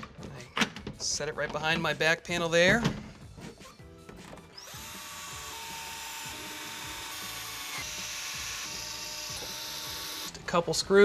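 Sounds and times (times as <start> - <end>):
cordless drill boring holes: 4.6 - 10.4.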